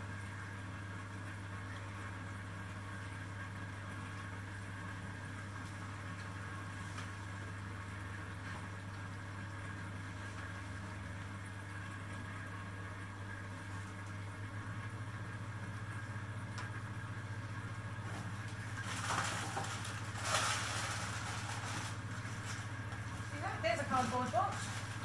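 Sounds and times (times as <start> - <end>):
low electrical hum: 0.0 - 25.0.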